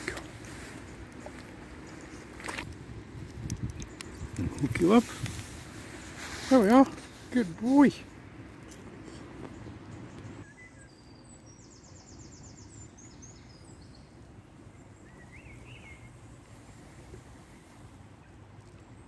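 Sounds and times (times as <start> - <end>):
steady low rumble: 0.0 - 10.4
songbird calls: 9.0 - 14.2, 14.8 - 16.3.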